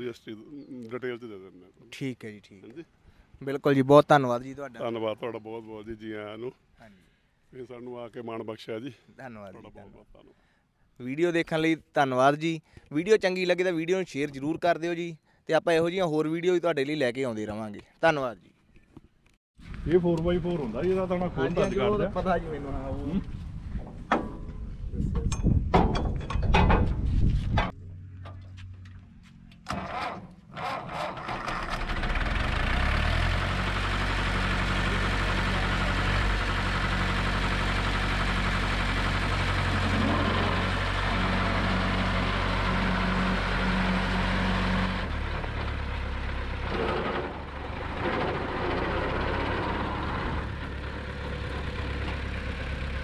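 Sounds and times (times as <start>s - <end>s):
tractor diesel engine running: 27.6s - 53.0s.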